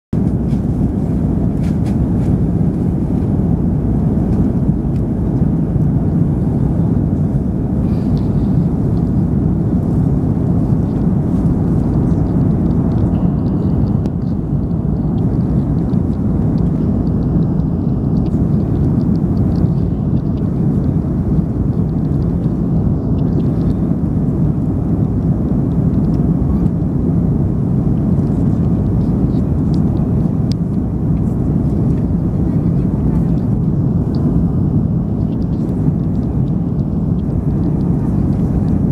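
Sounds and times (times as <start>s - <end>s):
airliner cabin engine rumble: 0.1s - 38.9s.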